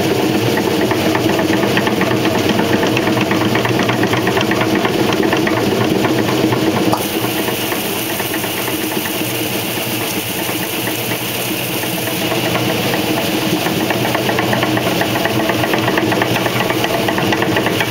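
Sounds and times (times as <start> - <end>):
washer spinning hum: 0.0 - 17.9
fast ticking rattle: 0.4 - 17.9
hiss: 6.9 - 17.9.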